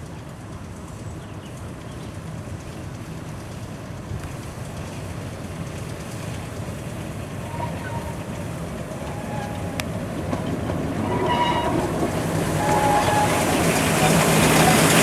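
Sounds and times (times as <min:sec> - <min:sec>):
diesel locomotive engine running: 0:00.0 - 0:15.0
high squeals from train: 0:07.3 - 0:15.0.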